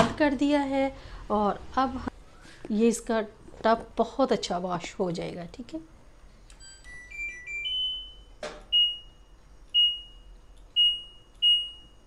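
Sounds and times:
rising beep tune: 0:06.8 - 0:09.2.

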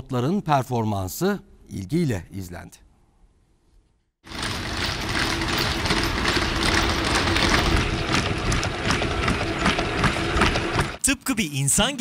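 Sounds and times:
robot mechanical running noise: 0:04.2 - 0:11.0.

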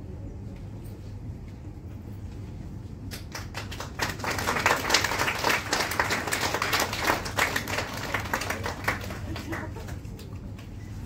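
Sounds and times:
audience applauding: 0:03.1 - 0:10.4.

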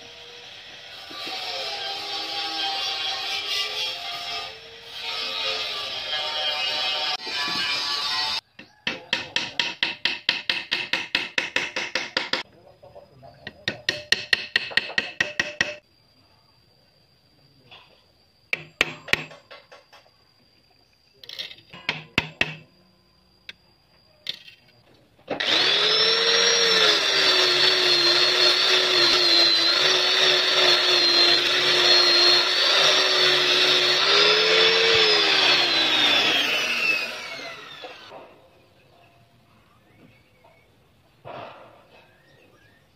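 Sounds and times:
power tool motor running: 0:25.4 - 0:38.1.

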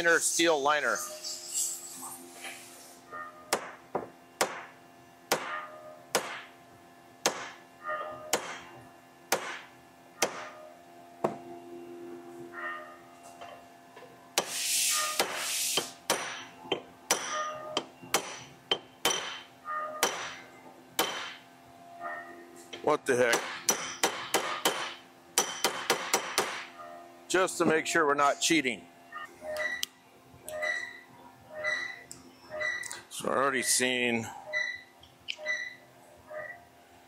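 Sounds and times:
hammer striking metal barrel: 0:05.3 - 0:06.5, 0:17.1 - 0:20.4, 0:21.0 - 0:21.4, 0:23.3 - 0:26.7.

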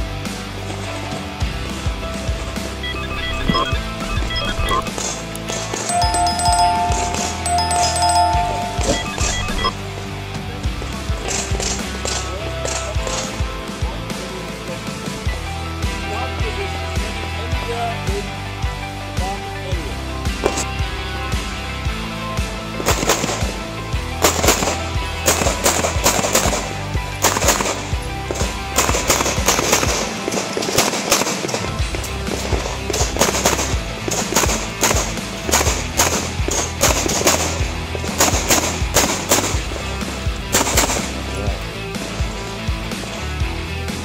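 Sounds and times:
background music with bass line: 0:00.0 - 0:30.4, 0:31.7 - 0:44.0
rapid handgun shots: 0:22.8 - 0:23.6, 0:24.2 - 0:39.7, 0:40.5 - 0:41.2.

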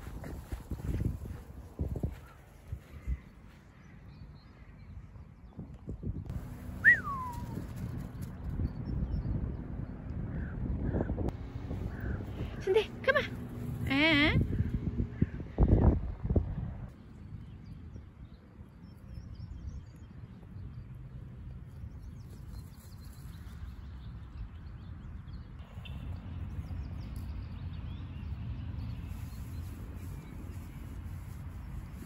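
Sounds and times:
low rumble: 0:06.3 - 0:16.9.

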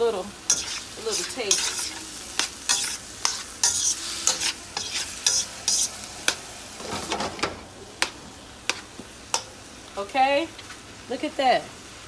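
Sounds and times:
chicken sizzling: 0:00.0 - 0:12.0
spatula scraping a wok: 0:00.5 - 0:07.0, 0:08.0 - 0:09.6.

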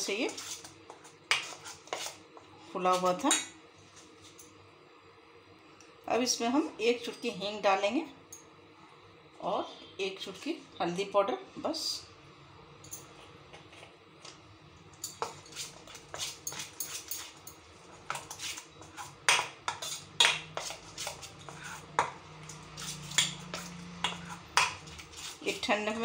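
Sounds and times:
spoon clinking and scraping bowl: 0:15.0 - 0:26.0.

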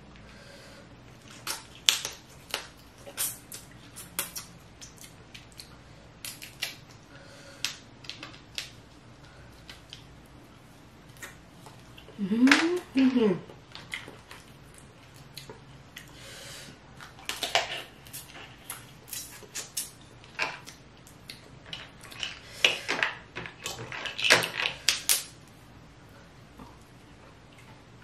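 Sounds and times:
crab shells cracking by hand: 0:01.3 - 0:06.9, 0:19.1 - 0:25.4.

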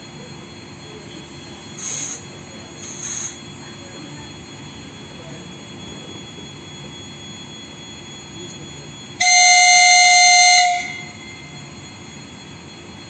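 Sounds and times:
low rail rumble: 0:00.0 - 0:13.0
train horn blast: 0:09.2 - 0:11.2.

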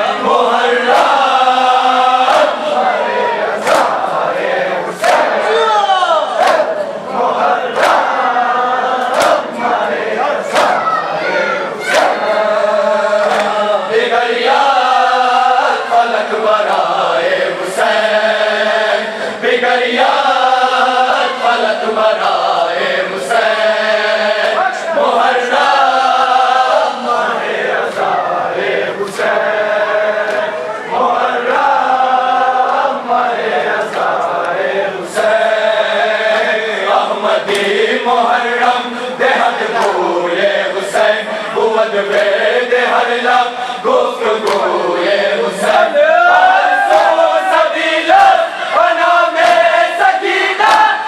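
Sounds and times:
men chanting a lament: 0:00.0 - 0:51.0
hand slapping chest: 0:03.6 - 0:04.1, 0:05.0 - 0:05.4, 0:06.4 - 0:06.8, 0:07.8 - 0:08.1, 0:09.0 - 0:09.5, 0:10.5 - 0:10.9, 0:11.9 - 0:12.2, 0:13.2 - 0:13.6, 0:37.5 - 0:37.7, 0:44.4 - 0:44.7.

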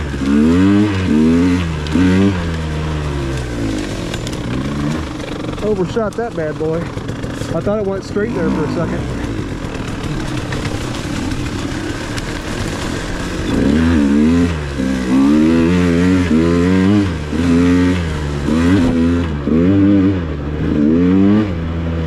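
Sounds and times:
dirt bike engine revving: 0:00.0 - 0:22.0.

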